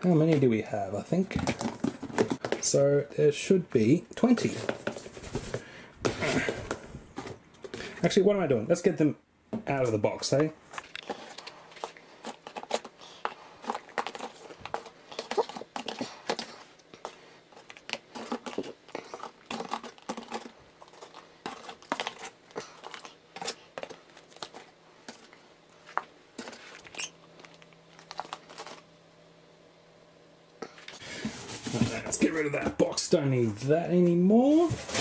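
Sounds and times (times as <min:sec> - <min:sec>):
plastic cups clicking and rustling: 0:01.3 - 0:02.8, 0:04.2 - 0:08.0, 0:10.4 - 0:28.8.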